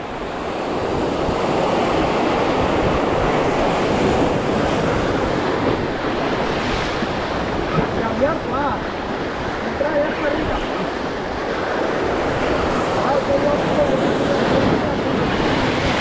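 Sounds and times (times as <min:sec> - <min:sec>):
wind buffeting microphone: 0:00.0 - 0:16.0
surf breaking over rocks: 0:00.2 - 0:16.0.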